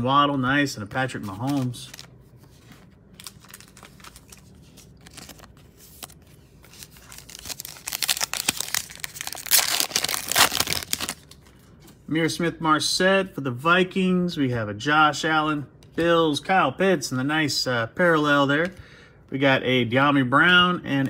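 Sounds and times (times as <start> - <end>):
foil wrapper crinkling and tearing: 3.2 - 11.4.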